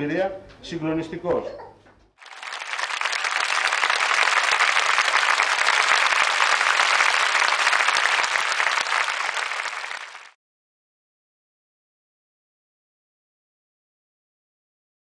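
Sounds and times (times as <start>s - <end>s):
audience applauding: 2.2s - 10.4s.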